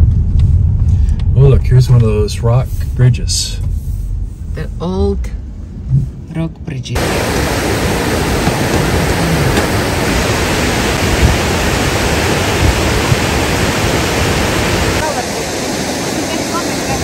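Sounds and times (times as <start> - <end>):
river rapids roaring: 7.0 - 17.0.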